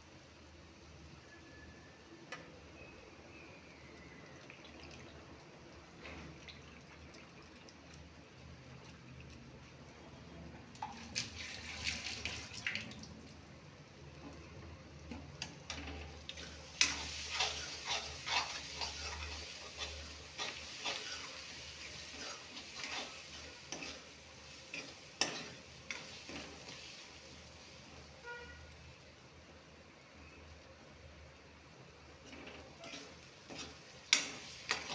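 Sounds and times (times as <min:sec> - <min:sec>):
soft frying sizzle: 0:00.0 - 0:34.9
spoon scraping metal pan: 0:15.7 - 0:26.8, 0:32.2 - 0:34.9.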